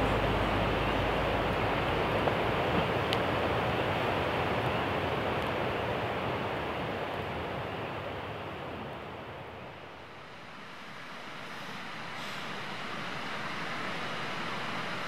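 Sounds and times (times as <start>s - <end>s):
fast-flowing river water: 0.0s - 9.4s.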